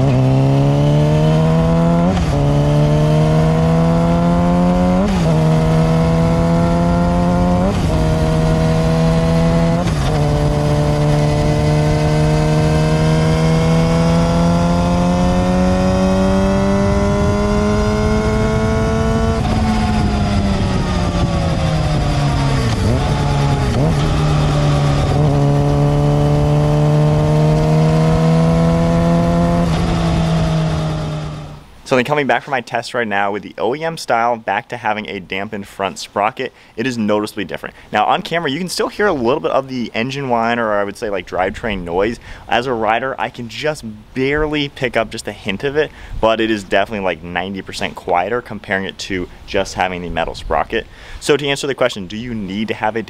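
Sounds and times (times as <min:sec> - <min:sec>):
motorcycle engine accelerating: 0:00.0 - 0:31.7
drivetrain whine: 0:00.0 - 0:31.9.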